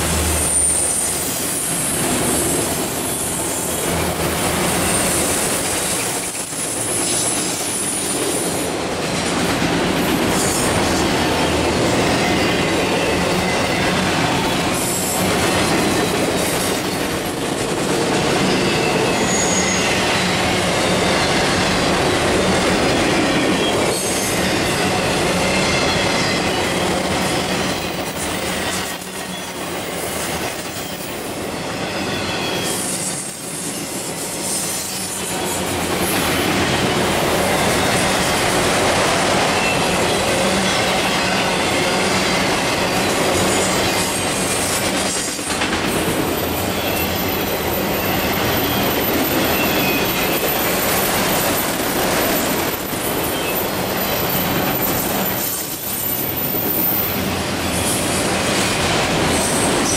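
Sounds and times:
freight cars rumbling on rails: 0.0s - 59.9s
wheel squeal: 18.5s - 20.2s.

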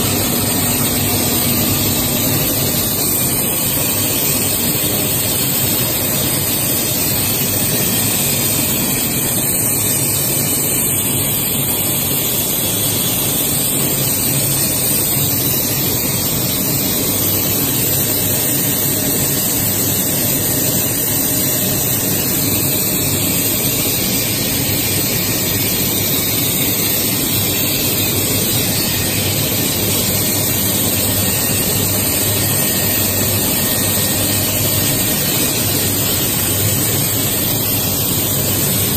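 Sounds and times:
low hum: 0.0s - 4.2s.

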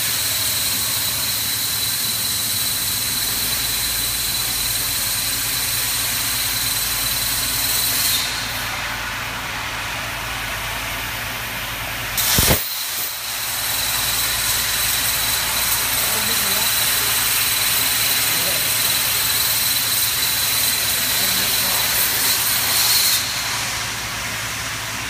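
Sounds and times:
plasma torch cutting metal: 0.0s - 11.0s, 12.2s - 25.0s
torch restart burst: 12.2s - 23.8s
air hiss: 12.2s - 25.0s.

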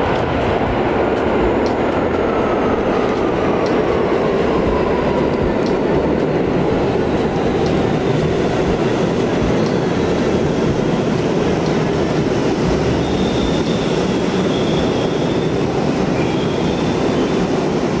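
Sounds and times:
subway train rumbling: 0.0s - 18.0s
faint high wheel squeal: 13.0s - 17.5s.

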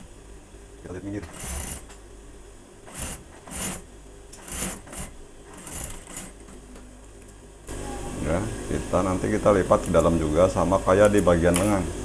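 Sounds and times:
low motor hum: 0.0s - 10.9s
sewing machine stitching: 1.2s - 1.9s, 2.9s - 3.8s, 4.4s - 6.6s.

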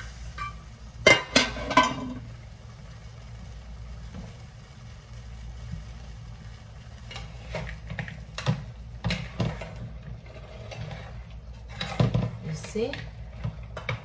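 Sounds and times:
metal spoon scraping a pan: 7.1s - 14.0s.

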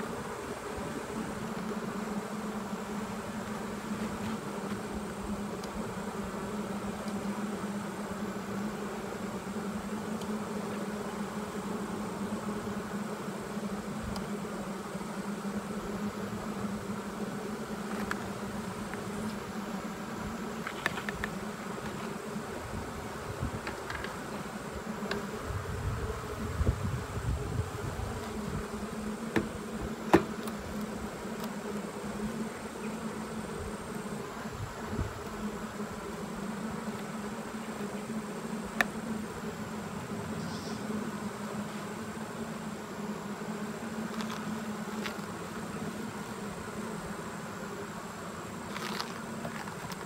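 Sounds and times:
bees buzzing: 0.0s - 50.0s
bee smoker bellows puffs: 13.8s - 50.0s.

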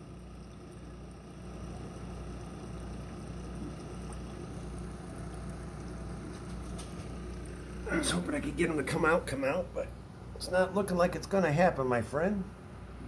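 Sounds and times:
bubbling water: 0.0s - 9.7s
aquarium pump hum: 0.0s - 13.0s.

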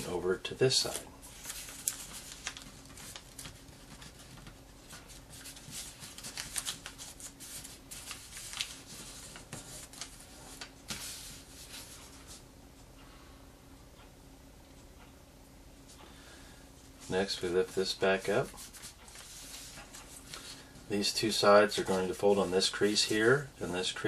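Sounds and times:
paper crinkling and rustling: 0.7s - 12.4s, 17.0s - 24.0s.

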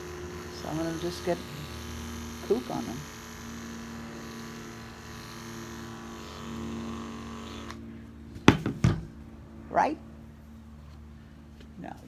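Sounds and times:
electric clippers humming: 0.0s - 7.9s
sharp knocks: 8.4s - 9.1s.

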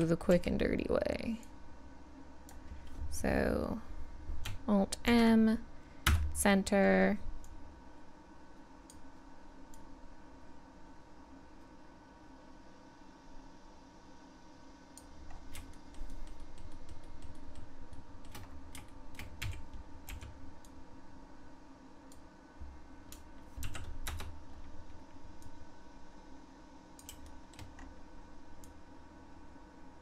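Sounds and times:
keyboard keys clicking: 15.5s - 20.3s, 23.1s - 24.4s.

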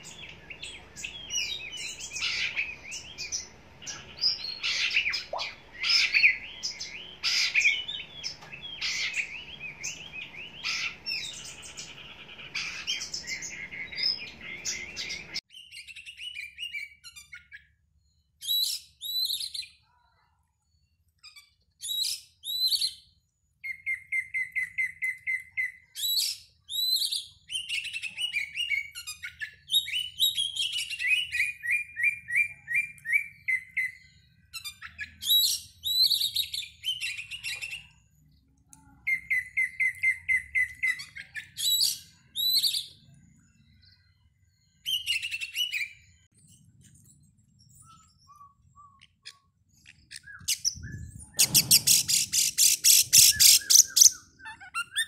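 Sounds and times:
bird whistling song: 0.0s - 19.8s, 21.2s - 38.3s, 39.0s - 55.0s.

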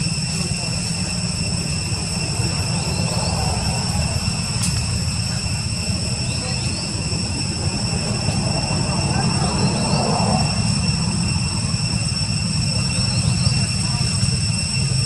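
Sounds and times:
high-pitched whine: 0.0s - 15.0s
low rumble: 0.0s - 15.0s.

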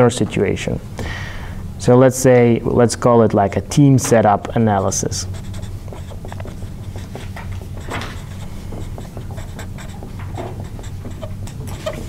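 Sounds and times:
steady low hum: 0.0s - 12.0s
marker pen scratching on paper: 4.8s - 12.0s.

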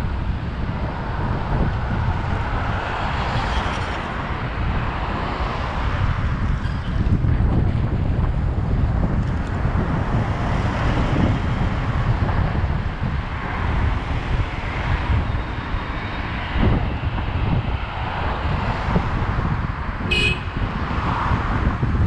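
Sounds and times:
road and traffic noise: 0.0s - 22.0s
wind buffeting microphone: 0.0s - 22.0s.

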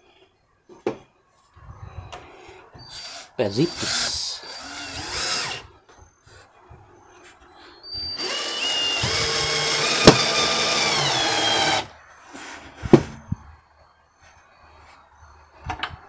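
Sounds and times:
cordless drill into wood: 2.9s - 5.6s, 8.1s - 11.9s.

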